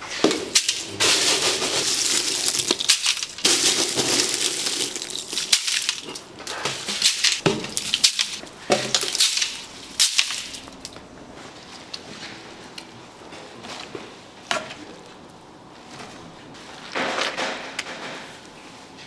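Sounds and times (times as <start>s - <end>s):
rustling scrape: 0.0s - 7.4s
low background noise: 0.0s - 19.0s.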